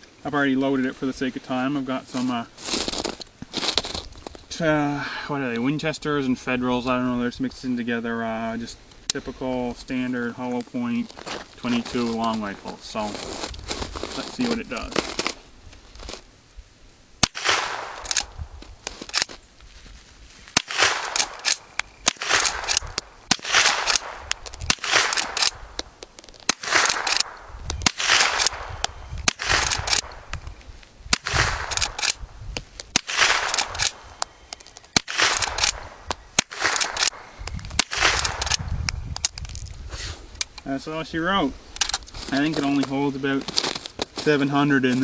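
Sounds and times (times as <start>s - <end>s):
rifle shots with short echo: 17.2s - 19.3s, 20.6s - 25.9s, 26.5s - 30.3s, 31.1s - 32.3s, 32.9s - 34.2s, 34.9s - 38.7s.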